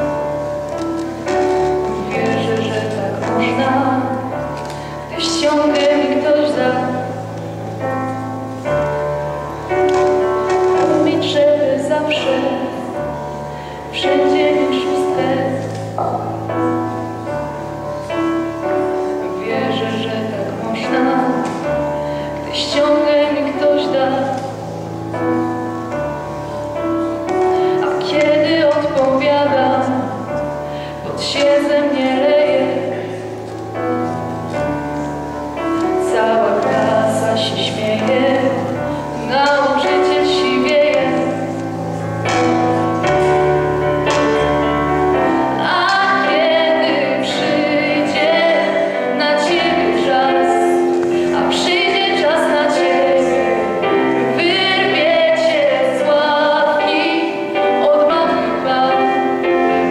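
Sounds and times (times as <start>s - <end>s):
girl singing into microphone: 0.0s - 7.3s, 9.7s - 16.7s, 18.6s - 24.6s, 26.8s - 33.3s, 34.6s - 42.5s, 45.2s - 59.9s
electric keyboard chords: 0.0s - 59.9s.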